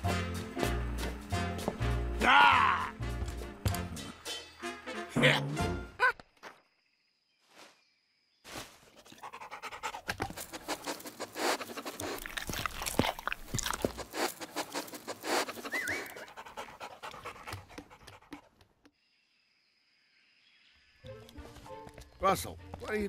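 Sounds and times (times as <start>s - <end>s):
dog panting and sniffing: 9.0s - 18.7s.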